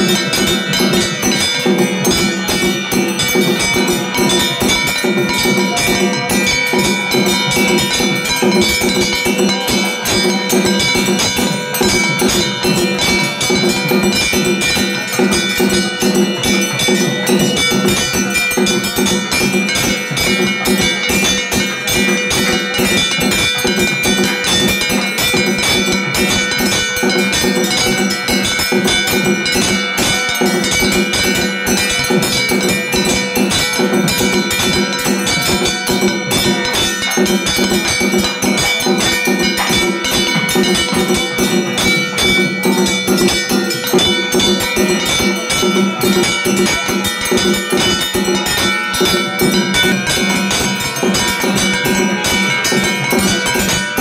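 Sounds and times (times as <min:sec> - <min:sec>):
rapid percussion: 0:00.0 - 0:54.0
temple bells ringing: 0:00.0 - 0:54.0.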